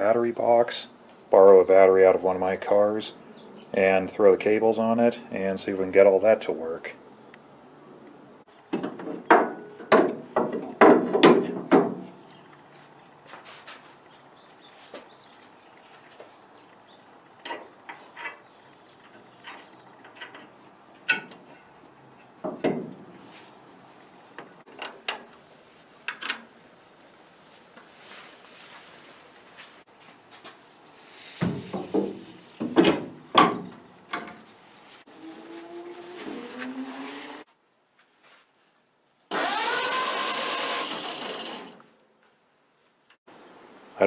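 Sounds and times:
metal parts and tools clanking: 0:17.4 - 0:21.7.

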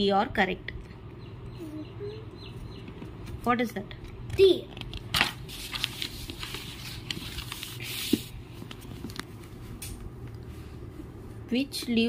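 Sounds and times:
paper pages rustling: 0:04.7 - 0:09.7.

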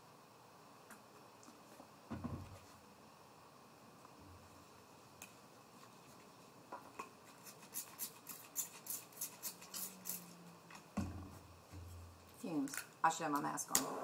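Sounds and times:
spray bottle hissing sprays: 0:07.4 - 0:10.3.

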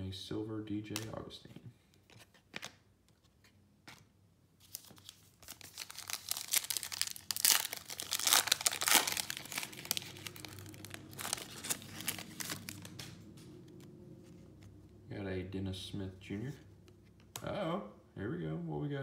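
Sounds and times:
foil wrapper tearing and crinkling: 0:04.7 - 0:13.2.

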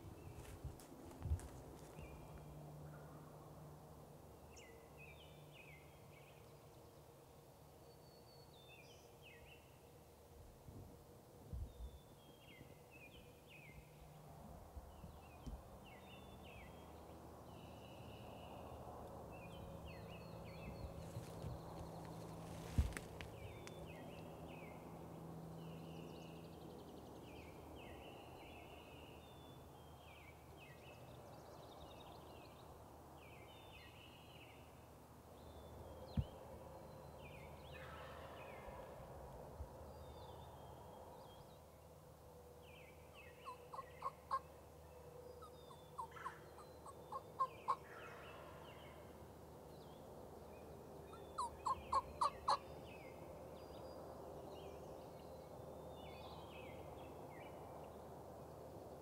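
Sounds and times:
small birds chirping: 0:14.8 - 0:24.9, 0:42.7 - 0:58.8
wild turkey yelping: 0:43.5 - 0:44.4, 0:45.7 - 0:47.8, 0:51.4 - 0:52.6.

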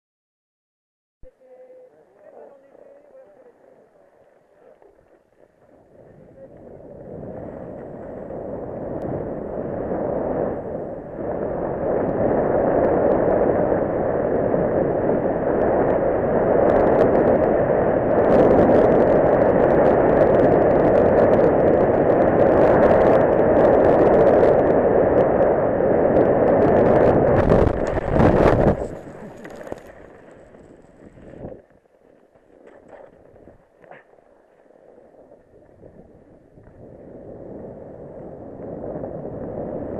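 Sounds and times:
wind on microphone: 0:01.2 - 0:31.8, 0:32.5 - 0:39.9
sharp crackles: 0:01.3 - 0:39.9
skis scraping over hard snow: 0:27.2 - 0:34.1.

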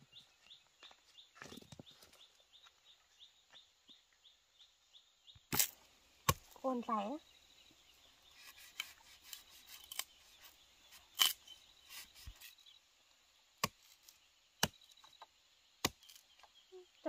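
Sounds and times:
machete chopping stalk: 0:05.5 - 0:06.5, 0:11.1 - 0:12.6, 0:13.6 - 0:14.9.

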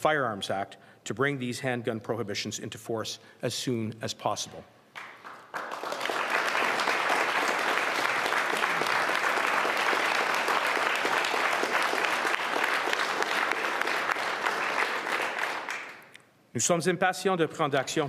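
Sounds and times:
crowd applause: 0:05.0 - 0:16.0.

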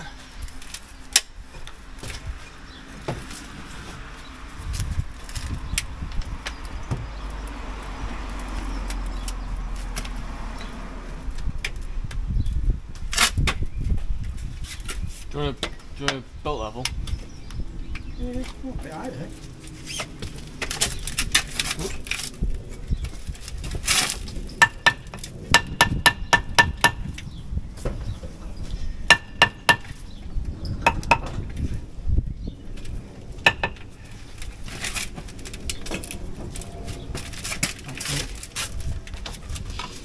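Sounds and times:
hammer striking chisel: 0:24.6 - 0:27.1, 0:29.1 - 0:29.9
scraping and crumbling rubble: 0:32.7 - 0:40.0.

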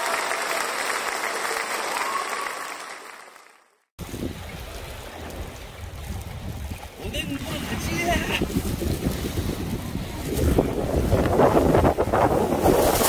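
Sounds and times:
wind on microphone: 0:04.0 - 0:13.0.

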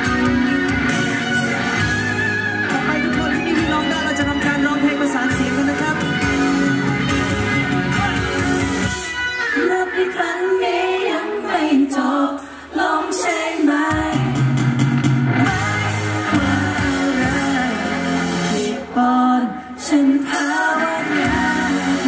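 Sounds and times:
live pop band playing: 0:00.0 - 0:22.0
man singing slow melody: 0:15.5 - 0:22.0.

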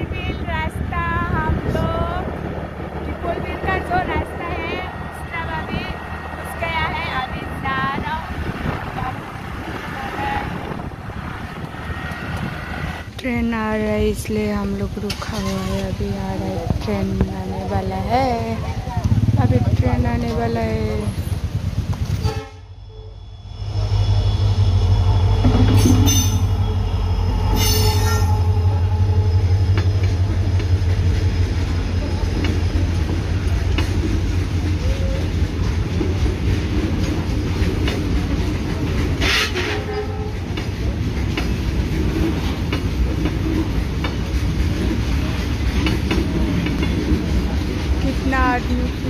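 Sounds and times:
freight train wheels rumbling: 0:00.0 - 0:49.0
train horn: 0:22.2 - 0:23.4, 0:24.1 - 0:29.9, 0:39.2 - 0:40.4.

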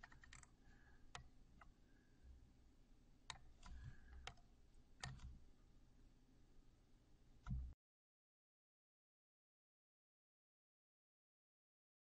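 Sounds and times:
mouse and keyboard clicks: 0:00.0 - 0:01.7, 0:03.3 - 0:05.4
low room hum: 0:00.0 - 0:07.8.

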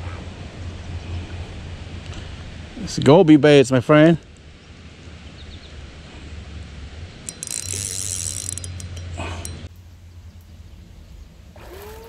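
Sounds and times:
fishing reel ratcheting: 0:07.2 - 0:09.7.

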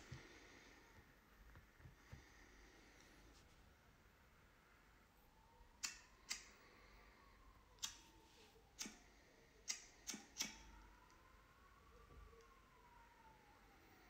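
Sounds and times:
sharp quiet clicks: 0:05.8 - 0:06.5, 0:07.8 - 0:08.0, 0:08.8 - 0:09.0, 0:09.6 - 0:11.2.

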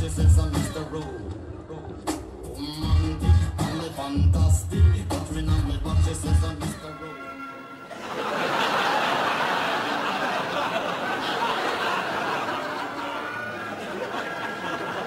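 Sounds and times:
pop song: 0:00.0 - 0:07.8
studio audience laughing: 0:07.9 - 0:15.0.

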